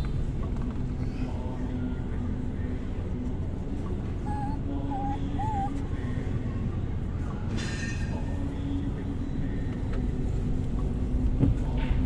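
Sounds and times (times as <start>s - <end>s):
car engine and tyres rumble: 0.0s - 12.0s.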